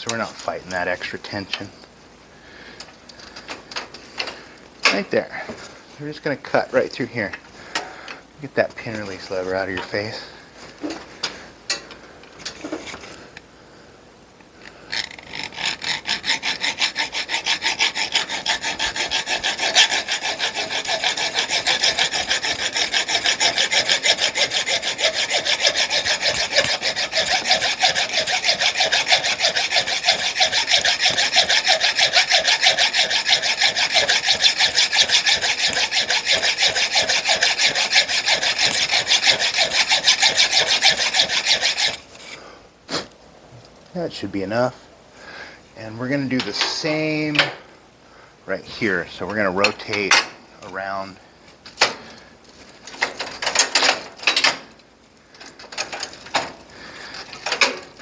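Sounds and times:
hacksaw sawing steel: 14.9s - 42.4s, 53.0s - 54.6s, 55.8s - 58.0s.

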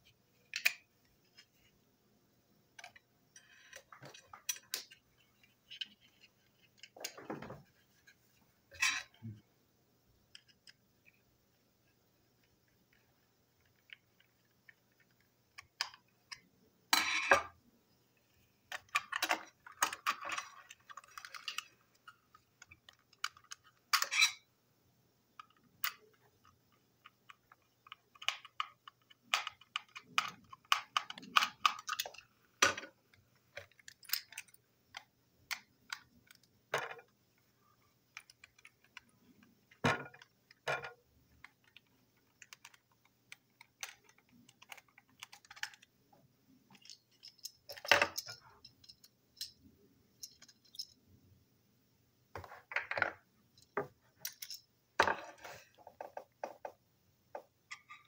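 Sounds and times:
toy parts clicking and knocking: 0.5s - 1.4s, 2.8s - 7.2s, 13.6s - 16.4s, 18.7s - 24.5s, 25.4s - 37.2s, 38.0s - 45.9s, 46.7s - 49.6s, 50.2s - 51.0s, 53.6s - 56.8s.

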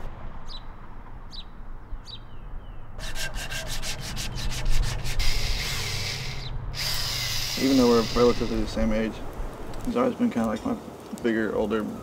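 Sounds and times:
power drill abrading metal: 5.0s - 8.8s.

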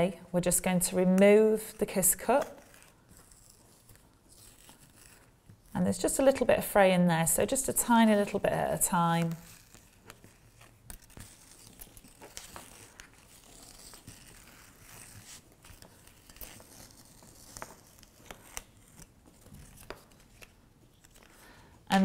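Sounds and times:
plastic strip peeling crackle: 9.1s - 21.4s.

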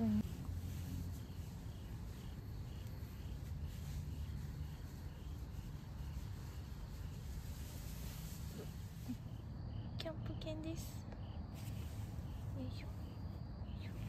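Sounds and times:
insects chirping: 0.0s - 14.0s.

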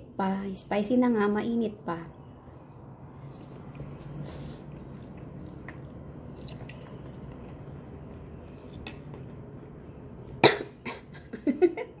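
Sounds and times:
faint room hum: 0.0s - 12.0s
woman coughing: 10.4s - 11.2s.

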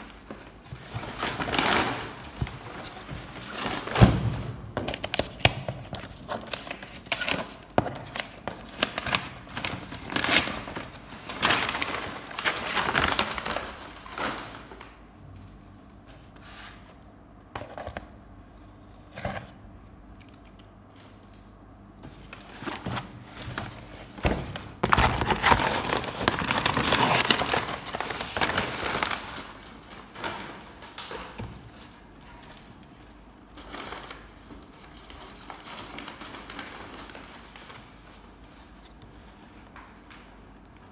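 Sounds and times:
wrapping paper tearing and crumpling: 0.0s - 15.0s, 24.8s - 31.2s.

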